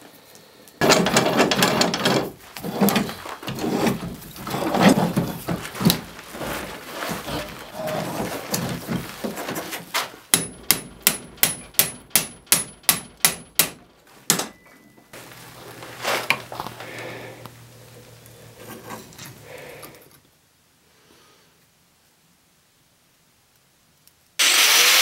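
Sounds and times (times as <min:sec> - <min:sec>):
soft scraping of metal: 0:00.8 - 0:10.2, 0:15.2 - 0:20.2
hammer ringing on hot steel: 0:10.3 - 0:14.9
low hum: 0:14.8 - 0:20.2.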